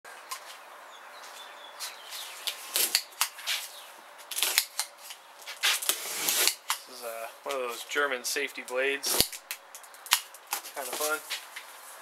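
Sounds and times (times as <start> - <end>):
box cutter slicing packing tape: 2.5 - 3.6, 4.3 - 4.9, 5.6 - 6.9, 9.0 - 9.4.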